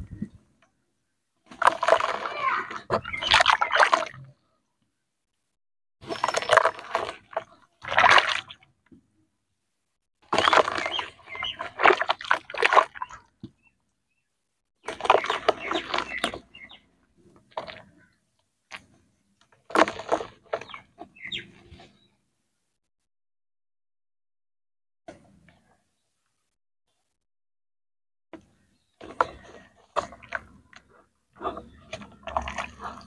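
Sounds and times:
hands splashing in muddy water: 1.4s - 4.3s, 6.0s - 8.6s, 10.2s - 13.7s, 14.8s - 16.8s, 19.7s - 21.8s, 29.0s - 33.0s.

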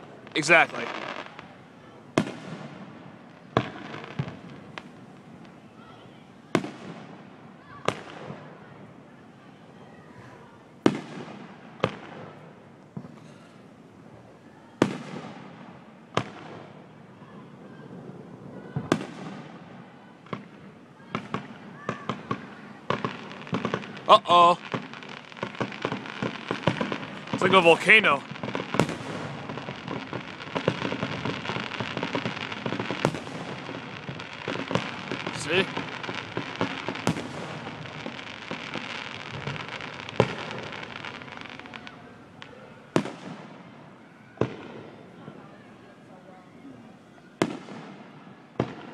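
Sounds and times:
fireworks banging: 0.0s - 5.7s, 10.8s - 13.5s, 18.8s - 45.4s, 47.4s - 48.9s.

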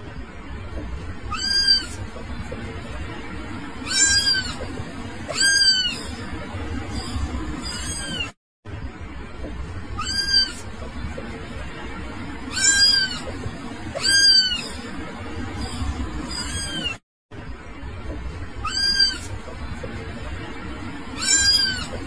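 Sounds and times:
steady low background noise: 0.0s - 16.6s, 17.3s - 22.0s
kitten meowing: 1.3s - 2.0s, 3.8s - 4.6s, 5.3s - 6.1s, 7.6s - 8.3s, 10.0s - 10.7s, 12.5s - 13.2s, 14.0s - 14.8s, 15.6s - 17.0s, 18.6s - 19.3s, 21.2s - 22.0s.

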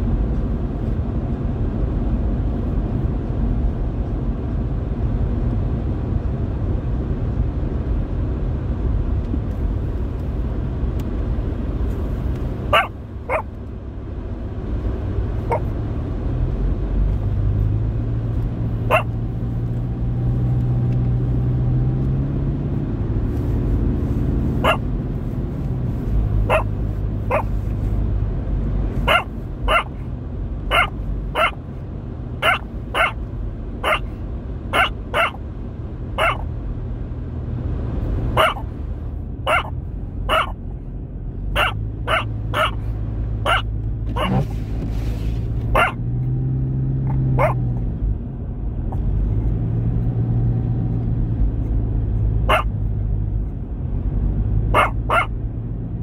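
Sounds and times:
road and engine rumble in car: 0.0s - 56.0s
dog barking: 12.7s - 13.5s, 18.9s - 19.2s, 24.6s - 24.9s, 26.4s - 26.7s, 27.3s - 27.5s, 29.0s - 30.0s, 30.7s - 31.6s, 32.4s - 33.2s, 33.8s - 34.1s, 34.7s - 35.4s, 36.2s - 36.4s, 38.4s - 38.6s, 39.5s - 39.7s, 40.3s - 40.6s, 41.6s - 42.8s, 43.4s - 44.5s, 45.7s - 46.0s, 47.3s - 47.6s, 52.4s - 52.8s, 54.7s - 55.3s.

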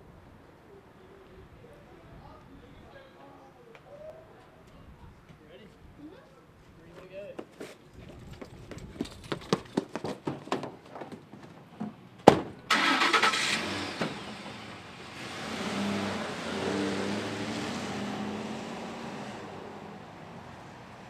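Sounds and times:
running footsteps on pavement: 6.9s - 11.6s
truck engine starting and driving: 12.7s - 20.4s.

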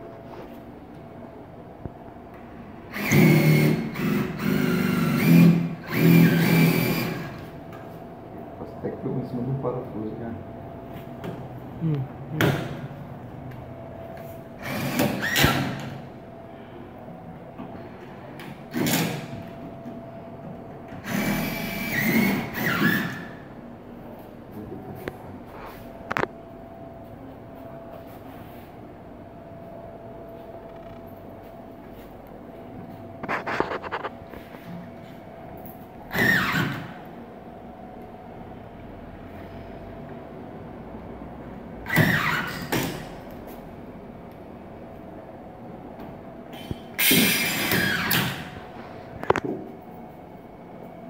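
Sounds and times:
cordless drill driving screws: 2.9s - 7.4s.

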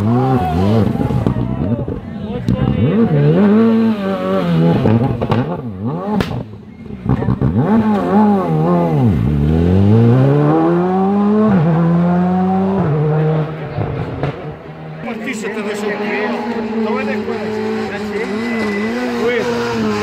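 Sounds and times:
rally car engine revving: 0.0s - 20.0s
sharp crack: 6.2s - 6.5s.

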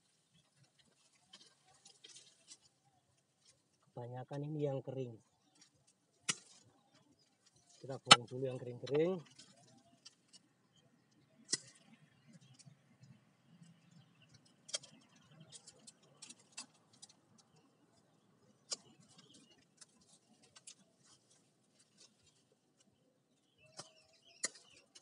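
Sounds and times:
dry bamboo crackling and snapping: 0.0s - 13.2s, 13.8s - 25.0s.

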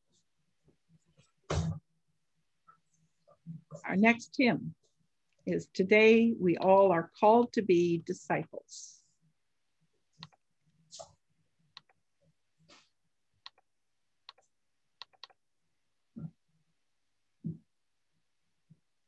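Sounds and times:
mouse and keyboard clicks: 10.2s - 10.4s, 14.3s - 15.4s.

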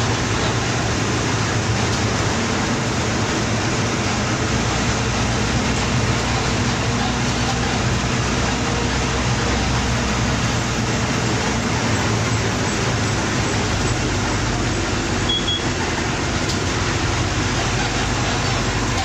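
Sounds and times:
bus engine running: 0.0s - 19.0s
tyre and road noise: 0.0s - 19.0s.

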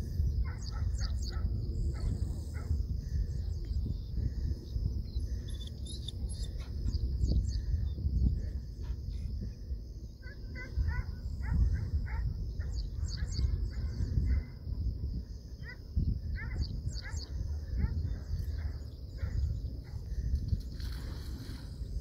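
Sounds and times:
birds chirping: 0.0s - 9.2s, 10.0s - 14.2s
wind buffeting microphone: 0.0s - 22.0s.

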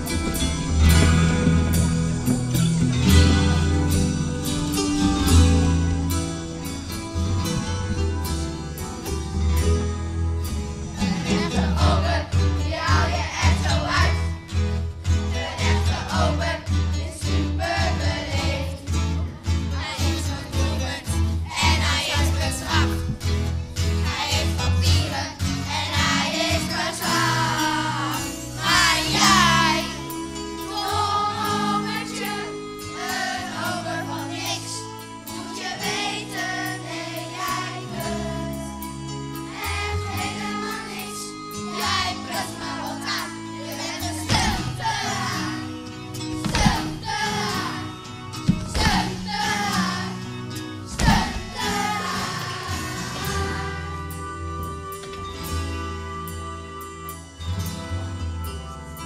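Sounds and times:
instrumental accompaniment: 0.0s - 59.0s
children singing: 11.0s - 14.4s, 15.2s - 18.9s, 19.7s - 23.1s, 23.9s - 38.8s, 39.5s - 45.8s, 46.4s - 54.2s.

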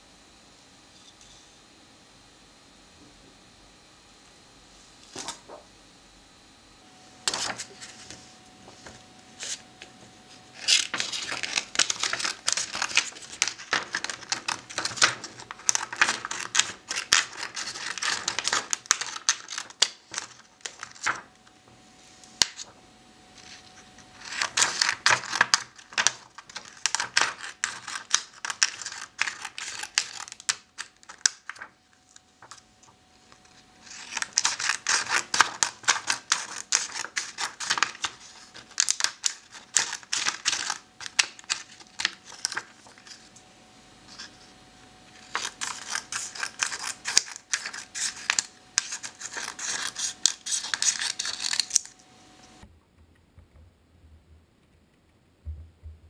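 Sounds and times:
scissors snipping paper: 10.5s - 21.3s, 23.4s - 32.6s, 33.3s - 43.2s, 45.2s - 52.0s.

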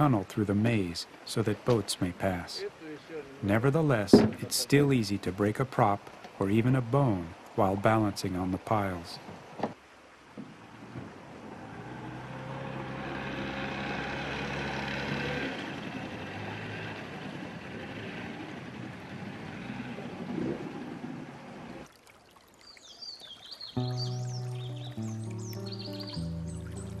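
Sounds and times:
water stream: 0.0s - 27.0s
outboard motor running: 10.6s - 21.8s
bird chirps: 22.6s - 27.0s.

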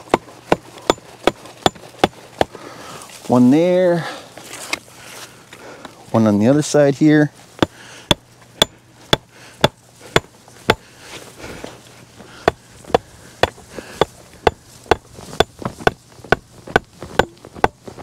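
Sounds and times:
hatchet striking wooden stake: 0.0s - 2.6s, 7.6s - 10.9s, 12.4s - 18.0s.

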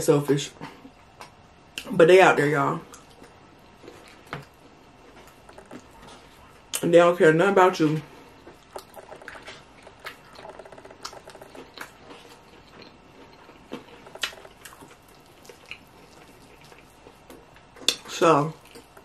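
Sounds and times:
wet chewing and mouth sounds: 2.8s - 6.9s, 8.1s - 19.0s.

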